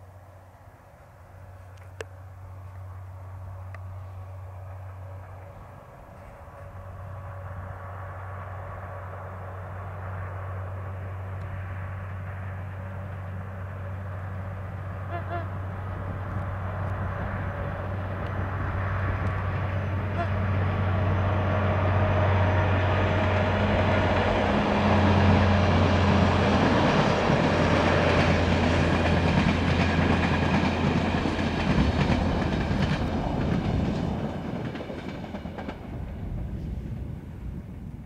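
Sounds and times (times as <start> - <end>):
diesel locomotive engine hum: 0.0 - 38.0
train wheels clattering on rails: 22.7 - 37.8.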